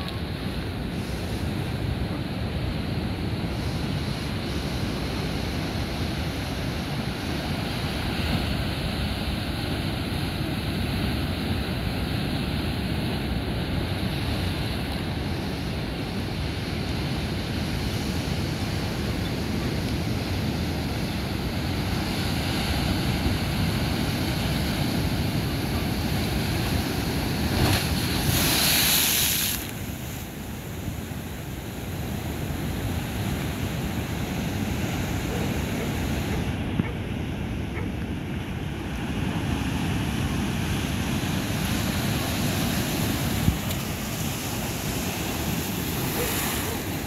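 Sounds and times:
surf washing over rocks: 0:00.0 - 0:47.0
wave splashing through rocks: 0:25.4 - 0:30.2.

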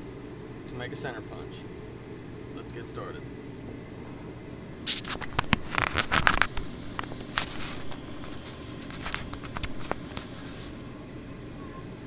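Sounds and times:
steady low hum: 0:00.0 - 0:12.0
phone handling rustling: 0:04.9 - 0:10.5.

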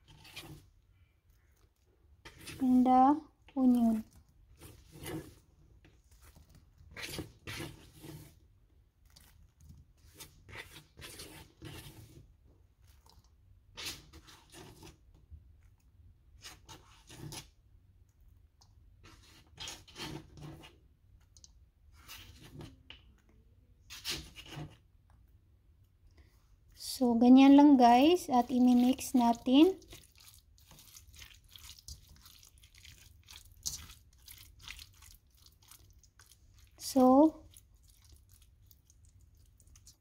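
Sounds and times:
short scrapes in a pan: 0:00.0 - 0:00.7, 0:02.2 - 0:02.9, 0:04.5 - 0:05.5, 0:06.9 - 0:08.4, 0:10.0 - 0:12.3, 0:13.7 - 0:15.0, 0:19.0 - 0:20.8, 0:21.9 - 0:22.8, 0:23.9 - 0:24.8.

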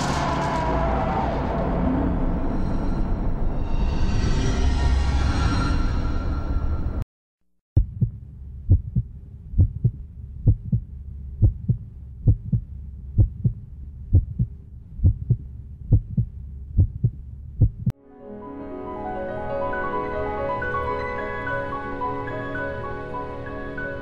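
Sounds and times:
heartbeat double thump: 0:07.8 - 0:17.9
music: 0:18.0 - 0:24.0.

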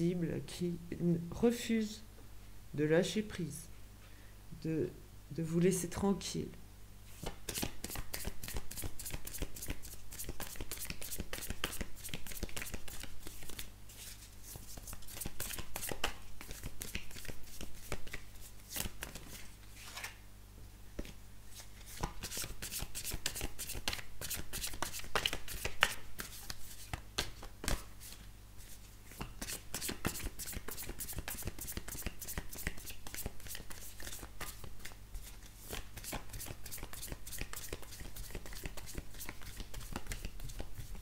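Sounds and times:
low steady hum: 0:00.0 - 0:41.0
cards being shuffled: 0:07.2 - 0:20.2, 0:21.0 - 0:41.0.

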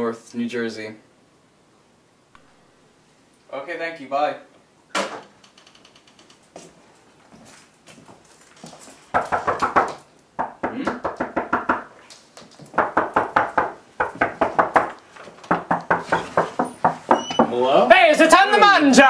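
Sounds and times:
hard knocking on door: 0:09.2 - 0:11.9, 0:12.7 - 0:17.6.

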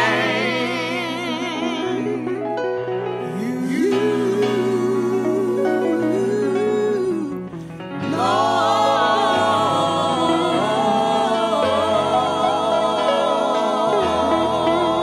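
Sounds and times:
gospel singing: 0:00.0 - 0:15.0
steady musical accompaniment: 0:00.0 - 0:15.0.

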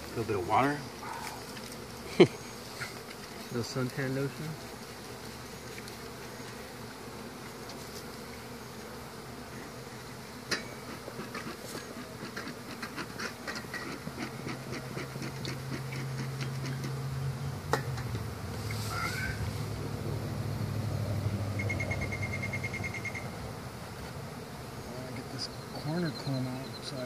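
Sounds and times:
bees buzzing: 0:00.0 - 0:27.0
steady low hum: 0:12.1 - 0:27.0.

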